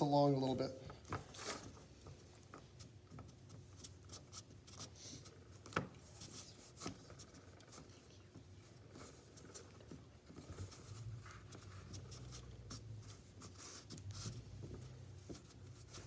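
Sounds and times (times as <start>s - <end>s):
hands rubbing modelling clay: 1.2s - 16.0s.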